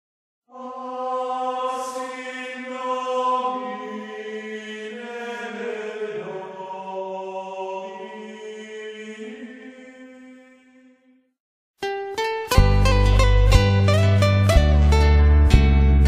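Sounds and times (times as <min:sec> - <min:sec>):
person chanting slowly: 0:00.5 - 0:10.8.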